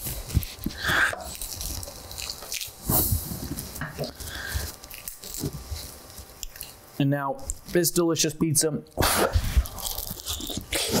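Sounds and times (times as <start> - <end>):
crust crackling: 0.0 - 8.2, 8.9 - 11.0.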